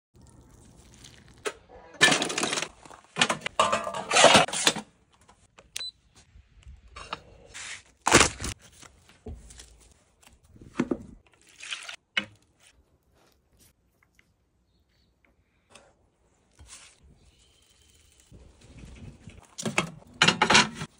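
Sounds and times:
utensils scraping: 3.5s - 4.8s.

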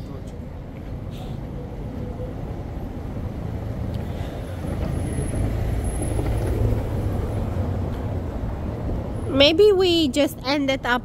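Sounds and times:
car driving on cobbles: 4.5s - 7.8s.

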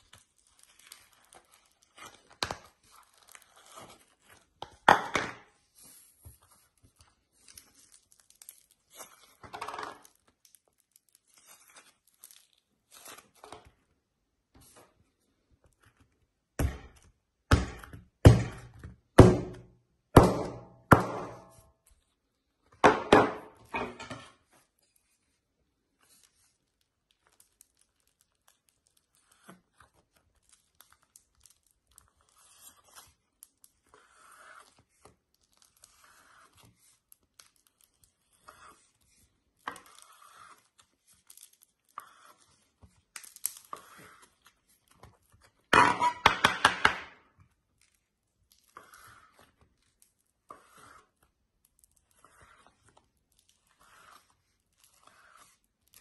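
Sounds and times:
slime crunching and crackling: 0.0s - 4.8s, 6.5s - 13.5s, 26.0s - 45.7s, 47.6s - 56.0s.

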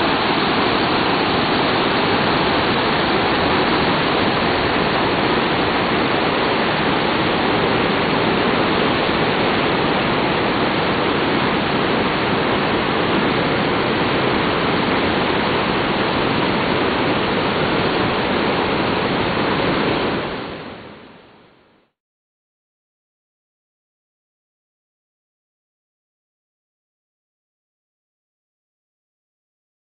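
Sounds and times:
water rushing over boulders: 0.0s - 21.1s.

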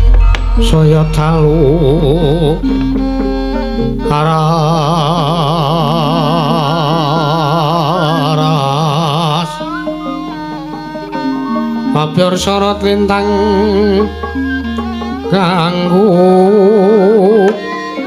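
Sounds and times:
man singing with wavering pitch: 0.3s - 18.0s
soft gamelan tones: 9.5s - 18.0s.

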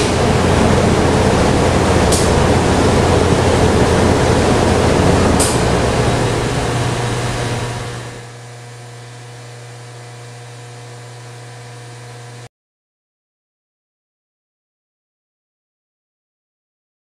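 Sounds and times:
cooling fans rushing: 0.0s - 12.5s
steady electrical hum: 0.0s - 12.5s.

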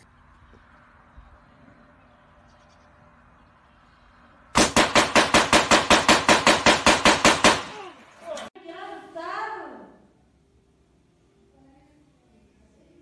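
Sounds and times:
rapid loud sharp bangs: 4.6s - 7.8s.

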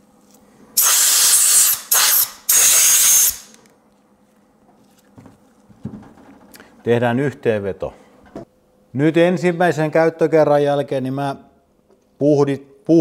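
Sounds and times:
compressed air blasts: 0.8s - 3.6s.

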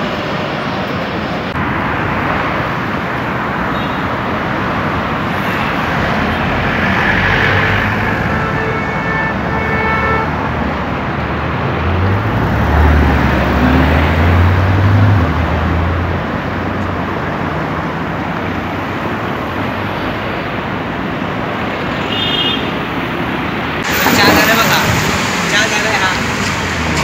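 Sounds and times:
road traffic noise: 0.0s - 27.0s
car horn: 3.7s - 4.2s, 5.4s - 10.4s, 21.9s - 22.8s.

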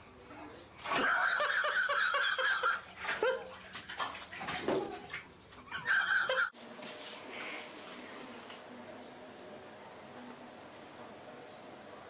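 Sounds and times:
water splashing in bathtub: 0.8s - 6.2s.

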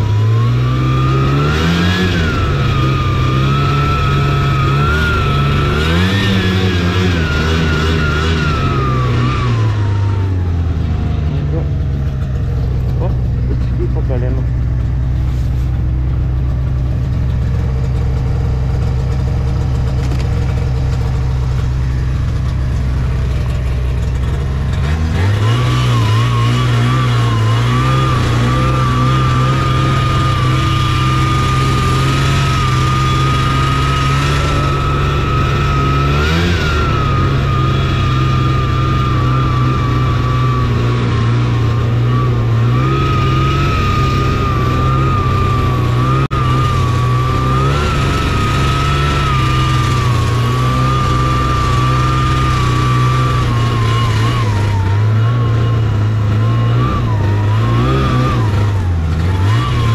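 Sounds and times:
high whine: 0.0s - 59.9s
snowmobile engine running: 0.0s - 59.9s.

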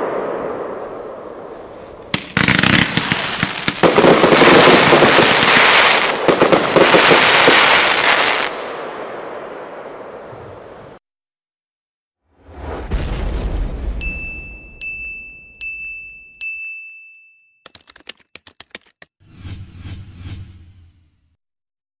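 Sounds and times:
firework crackling: 0.0s - 10.3s
firework bang: 12.4s - 14.1s.

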